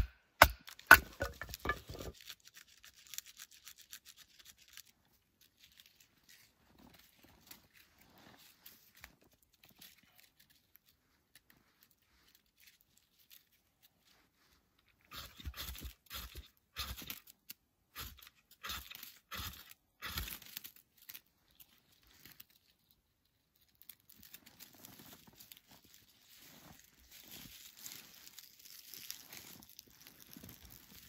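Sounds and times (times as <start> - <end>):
ferro rod scraping: 0.0 - 2.2.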